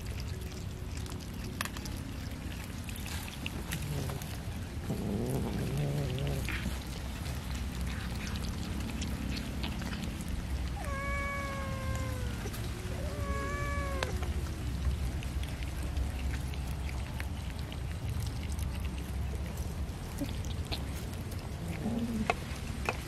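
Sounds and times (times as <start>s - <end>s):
cats chewing fish clicks: 0.0s - 23.0s
cat meowing: 10.7s - 14.3s.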